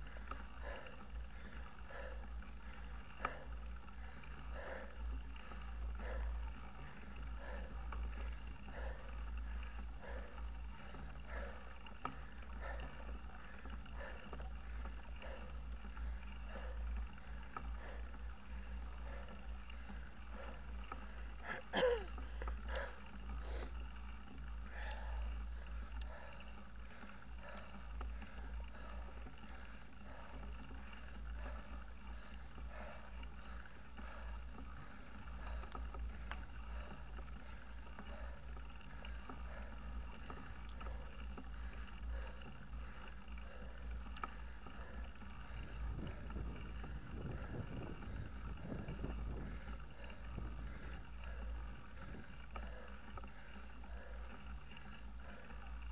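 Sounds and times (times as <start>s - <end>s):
wind buffeting microphone: 45.4s - 52.4s.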